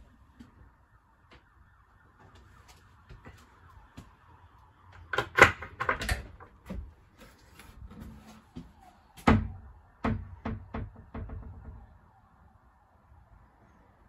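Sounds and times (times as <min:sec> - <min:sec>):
wooden door latch knocks and clicks: 0:09.3 - 0:11.8.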